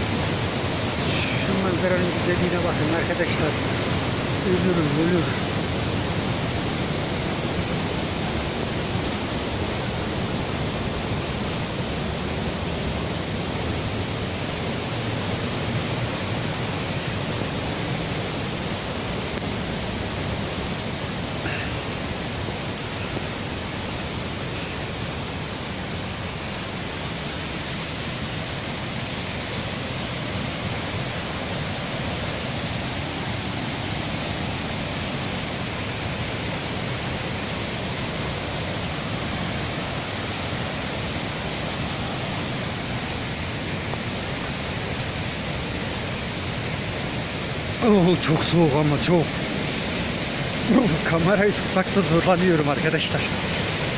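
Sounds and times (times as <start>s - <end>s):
waterfall rushing: 0.0s - 53.9s.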